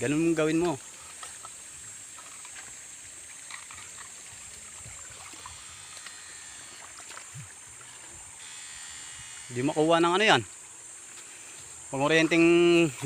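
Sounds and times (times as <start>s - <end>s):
stream water trickling: 0.0s - 13.0s
faint splashes: 0.4s - 8.3s.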